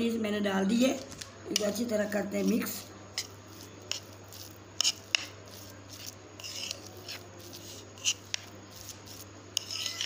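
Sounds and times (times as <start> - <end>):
fork scraping against a plate: 3.1 - 10.0.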